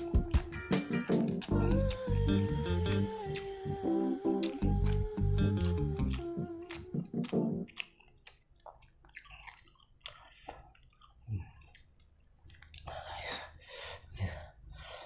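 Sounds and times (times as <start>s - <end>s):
person chewing noodles: 1.4s - 15.0s
breathy hiss: 1.7s - 7.3s.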